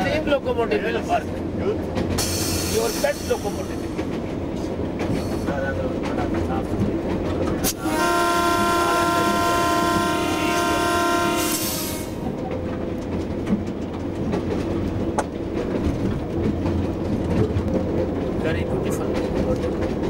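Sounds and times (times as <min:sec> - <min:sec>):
wheels clattering over rail joints: 0:00.0 - 0:07.7, 0:12.1 - 0:20.0
train running rumble: 0:00.0 - 0:20.0
train whistle blast: 0:07.7 - 0:12.2.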